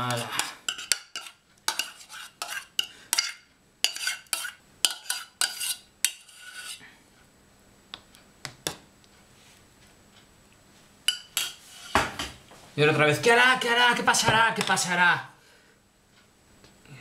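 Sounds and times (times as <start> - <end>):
metal spoon scraping saucepan: 0.0 - 6.8, 11.1 - 12.0.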